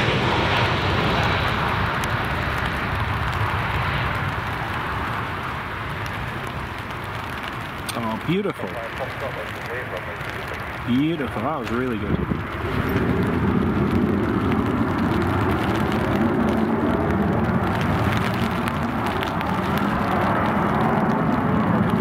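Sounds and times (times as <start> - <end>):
jet engines rushing: 0.0 - 22.0
wind buffeting microphone: 0.0 - 22.0.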